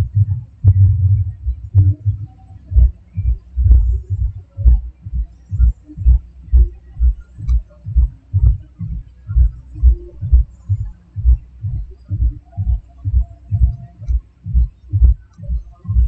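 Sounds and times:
low rhythmic thumping: 0.0s - 16.0s.

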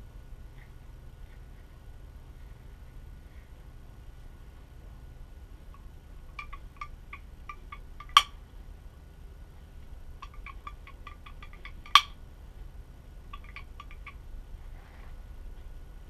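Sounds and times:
light metallic ticks: 5.7s - 8.4s, 13.3s - 14.2s.

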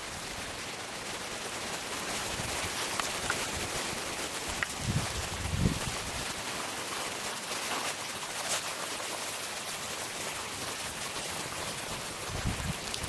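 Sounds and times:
light rain hissing: 0.0s - 13.0s
wind buffeting microphone: 4.4s - 6.4s, 12.0s - 13.0s.

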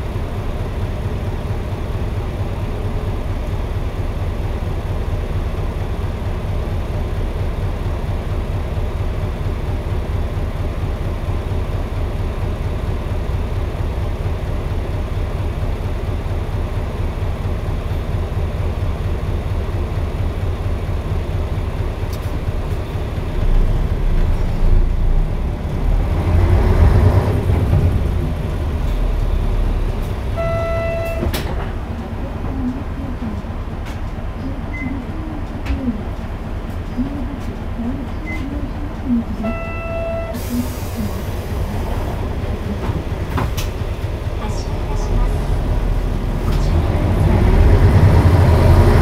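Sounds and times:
bus diesel engine droning: 0.0s - 49.0s
short electronic beep: 30.4s - 31.3s.

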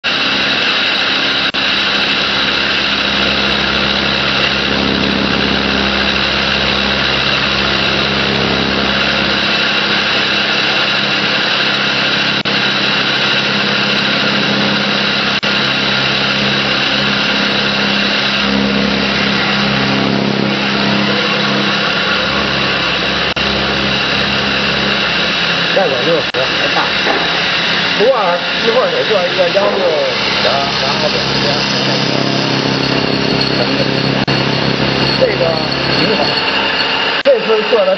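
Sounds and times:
drilling machine loud hum: 0.0s - 37.9s
high-pitched tones: 0.1s - 37.9s.

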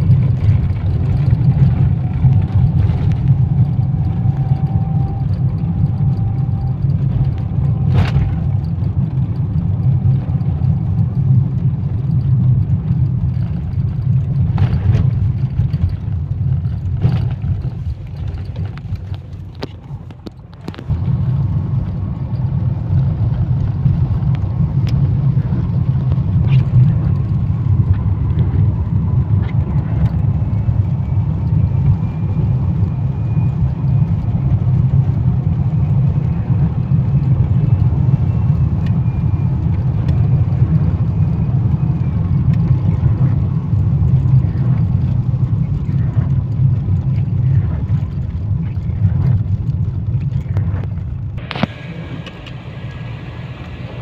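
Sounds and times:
scattered clicks: 0.0s - 21.1s
car engine and road noise: 0.0s - 54.0s
faint steady whine: 0.0s - 54.0s.

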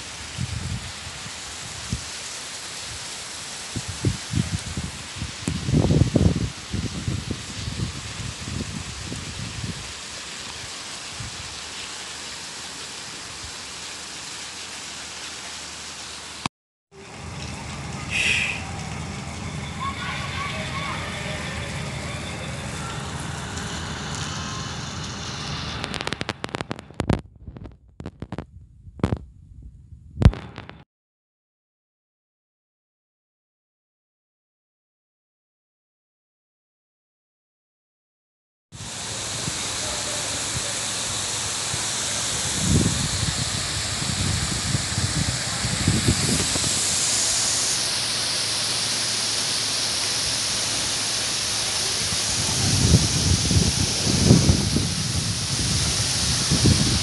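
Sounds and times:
heavy rain hissing: 0.0s - 27.2s, 38.8s - 57.0s
low rumbles on microphone: 21.6s - 30.8s, 42.5s - 47.1s, 52.0s - 57.0s.

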